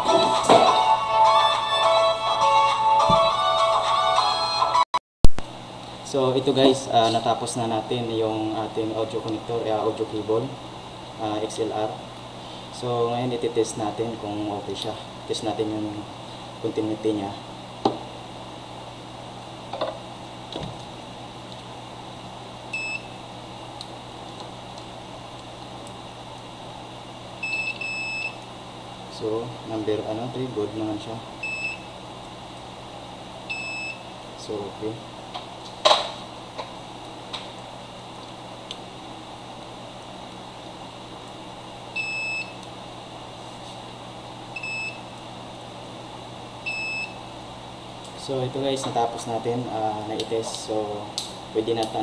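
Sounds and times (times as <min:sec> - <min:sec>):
multimeter beep: 0:22.7 - 0:23.1, 0:27.4 - 0:28.4, 0:31.4 - 0:31.9, 0:33.5 - 0:34.0, 0:42.0 - 0:42.6, 0:44.6 - 0:45.0, 0:46.7 - 0:47.2.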